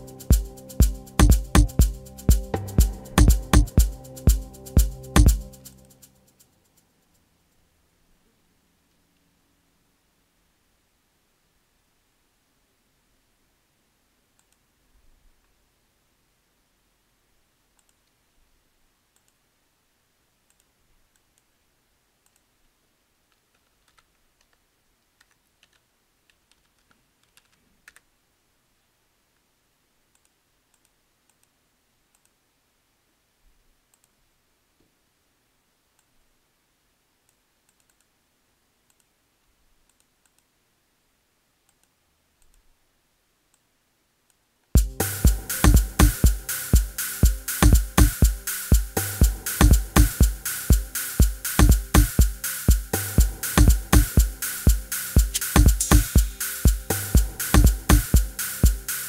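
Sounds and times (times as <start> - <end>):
electronic kick drum: 0.0 - 5.7, 44.8 - 59.0
house music beat: 0.0 - 6.2, 44.8 - 59.0
mouse and keyboard clicks: 23.3 - 28.1, 37.3 - 38.1.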